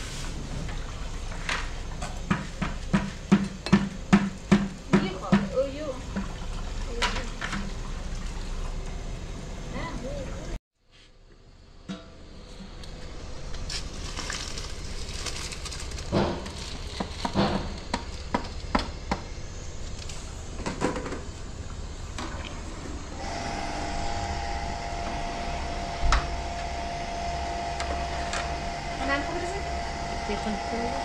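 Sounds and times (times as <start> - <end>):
mechanical whine: 17.6 - 31.0.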